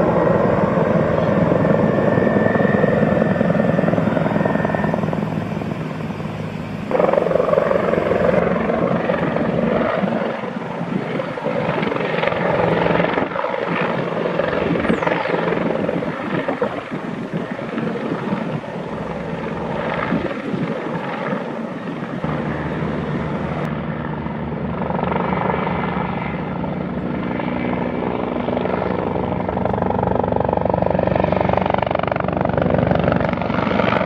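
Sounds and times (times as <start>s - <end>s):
helicopter flying overhead: 0.0s - 34.0s.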